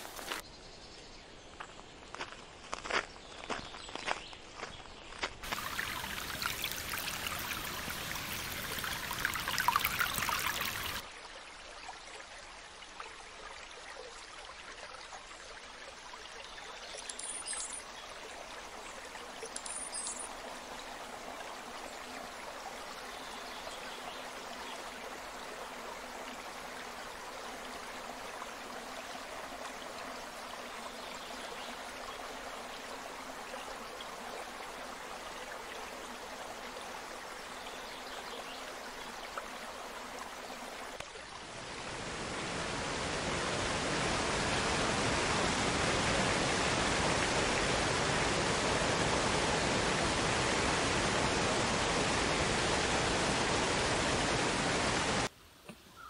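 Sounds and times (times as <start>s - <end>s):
stream rushing over rock: 0.0s - 0.4s, 5.4s - 55.3s
water pouring over rock edge: 5.4s - 11.0s.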